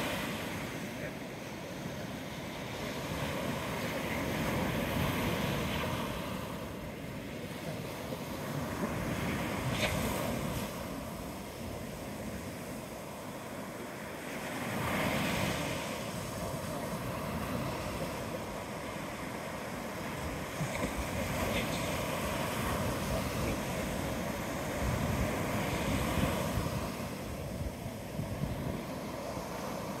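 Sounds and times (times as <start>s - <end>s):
wind rumbling on microphone: 14.8s - 30.0s.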